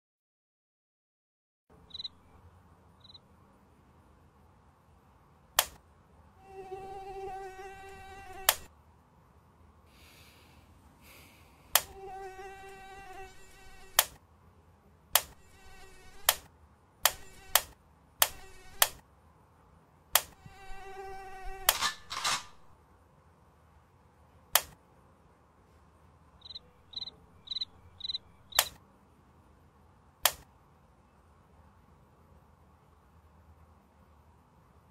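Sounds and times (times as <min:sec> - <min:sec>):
cricket chirping: 0:01.8 - 0:02.4, 0:03.0 - 0:03.2, 0:26.4 - 0:28.7
mosquito whine: 0:06.4 - 0:08.7, 0:11.8 - 0:14.0, 0:15.4 - 0:16.3, 0:17.2 - 0:17.7, 0:18.3 - 0:18.8, 0:20.4 - 0:22.1.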